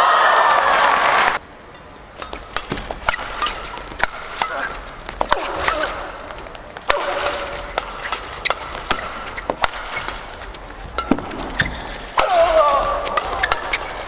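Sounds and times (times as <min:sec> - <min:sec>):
racket striking shuttlecock: 0:01.4 - 0:14.0
shoe squeaks on court floor: 0:02.2 - 0:05.9, 0:07.1 - 0:12.2, 0:13.4 - 0:14.0.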